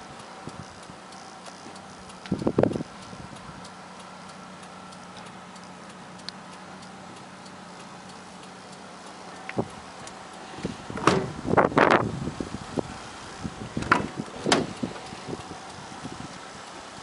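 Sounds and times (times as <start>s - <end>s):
faint ticking: 0.0s - 17.0s
low hum in car cabin: 0.0s - 17.0s
loud knock or rustle: 11.0s - 11.4s.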